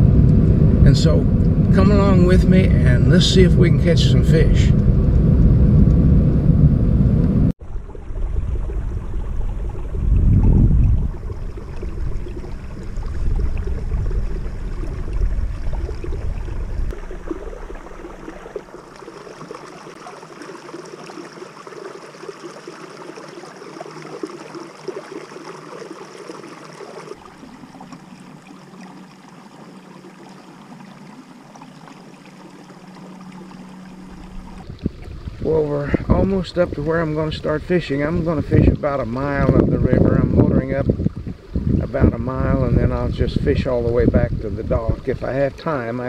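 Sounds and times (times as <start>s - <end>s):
wind rumble on microphone: 0.0s - 18.8s, 33.9s - 46.0s
faint steady motor hum: 0.0s - 46.0s
water rushing along a hull: 0.0s - 46.0s.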